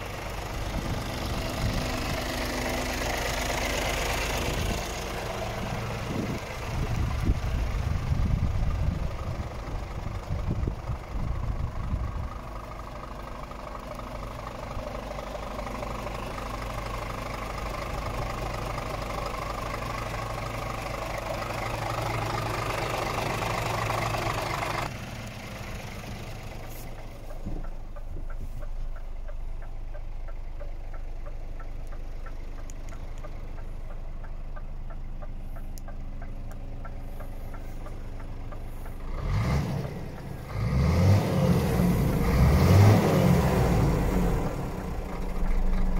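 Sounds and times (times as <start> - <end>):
diesel engine idling: 0.0 - 45.9
wind buffeting microphone: 5.8 - 12.4.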